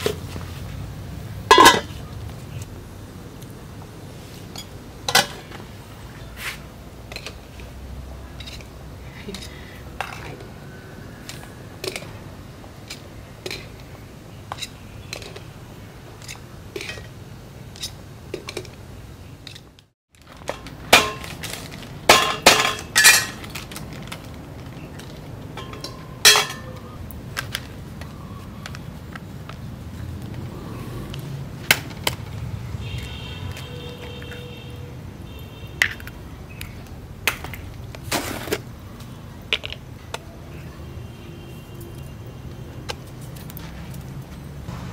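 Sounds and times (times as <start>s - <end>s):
metal tongs tapping a pot: 1.5s - 1.9s, 25.6s - 26.9s
utensils set down on a table: 1.5s - 2.0s, 4.6s - 5.6s, 20.3s - 23.7s, 25.6s - 26.9s.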